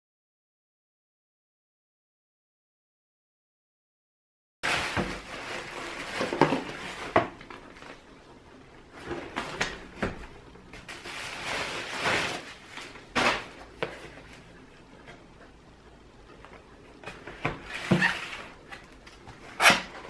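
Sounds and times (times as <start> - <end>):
bubble wrap crinkling: 4.6 - 8.2, 10.8 - 14.4.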